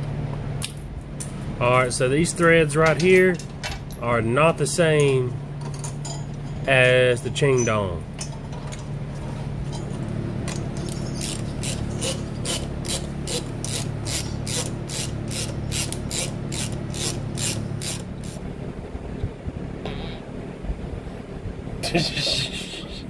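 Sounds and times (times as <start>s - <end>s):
steady low hum: 0.0s - 23.0s
ratchet wrench clicking: 11.2s - 18.4s.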